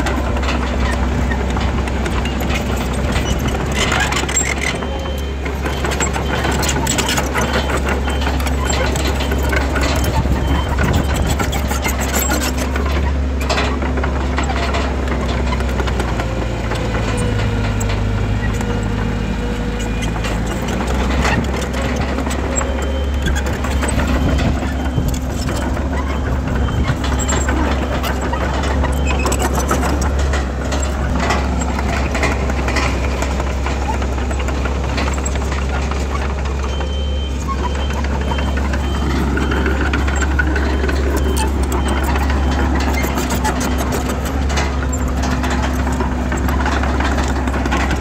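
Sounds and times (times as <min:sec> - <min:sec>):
heavy diesel engine running: 0:00.0 - 0:48.0.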